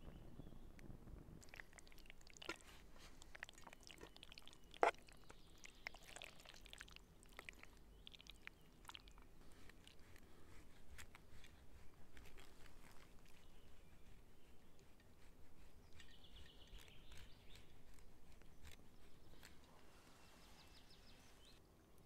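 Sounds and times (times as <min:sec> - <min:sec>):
wet squelching of sauce: 0:01.4 - 0:19.7.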